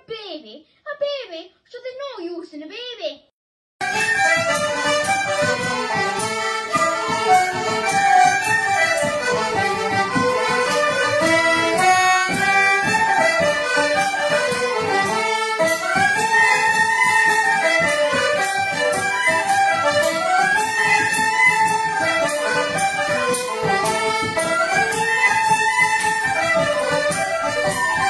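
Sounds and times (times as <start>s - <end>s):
accordion and concertina: 3.8s - 28.0s
frame drum beat: 3.8s - 28.0s
tenor banjo: 3.8s - 28.0s
tin whistles and flute: 15.6s - 22.7s, 24.4s - 28.0s.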